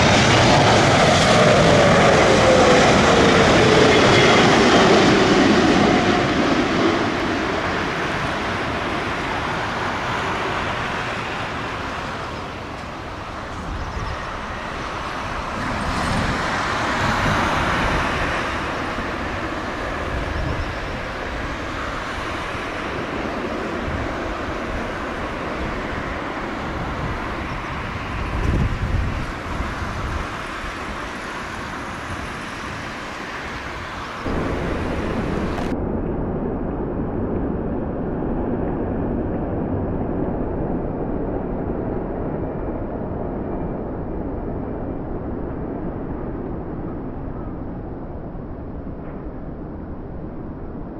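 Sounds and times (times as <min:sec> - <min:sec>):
jet engines running: 0:00.0 - 0:50.9
wind buffeting microphone: 0:00.0 - 0:50.9.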